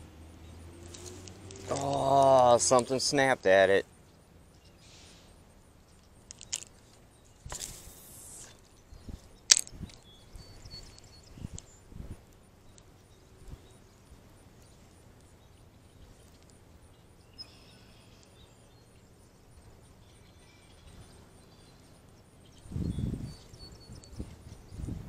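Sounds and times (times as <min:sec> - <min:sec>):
faint bird chirps: 0:03.8 - 0:11.9, 0:12.6 - 0:25.0
wind buffeting microphone: 0:08.9 - 0:12.2, 0:22.6 - 0:25.0.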